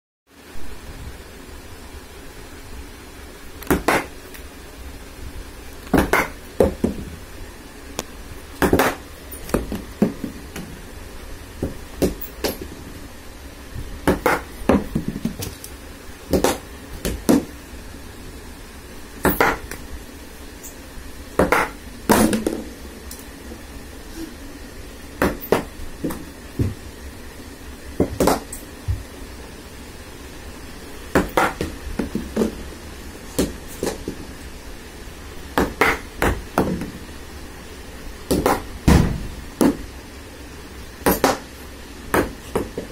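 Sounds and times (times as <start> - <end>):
ball bouncing on tiled floor: 3.6 - 4.1, 5.9 - 7.0, 8.6 - 10.7, 11.6 - 12.7, 14.1 - 15.6, 16.3 - 17.5, 19.2 - 19.8, 21.4 - 22.7, 25.2 - 26.8, 28.0 - 29.1, 31.2 - 32.6, 33.4 - 34.2, 35.6 - 37.0, 38.3 - 39.0, 41.1 - 41.5, 42.1 - 42.9
ball striking wooden bat: 3.7 - 4.1, 6.0 - 7.0, 8.6 - 10.4, 14.1 - 15.5, 16.3 - 17.5, 19.2 - 19.8, 21.4 - 22.7, 28.0 - 29.0, 31.2 - 32.6, 35.6 - 36.9.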